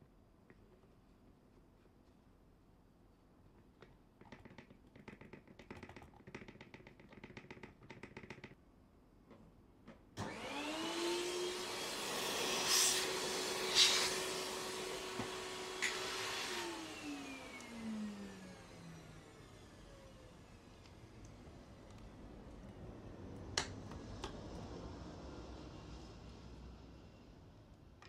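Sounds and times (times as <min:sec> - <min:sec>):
small taps and rattles: 0:03.5 - 0:08.6.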